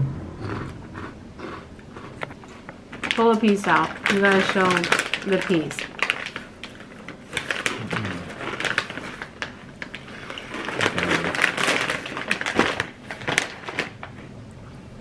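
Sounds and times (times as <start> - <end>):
plastic snack bags crackling: 2.9 - 14.3.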